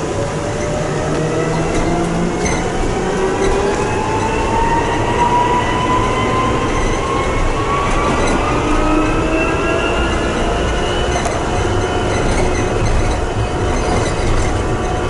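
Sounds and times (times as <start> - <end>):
road and tyre rumble: 0.0 - 15.0.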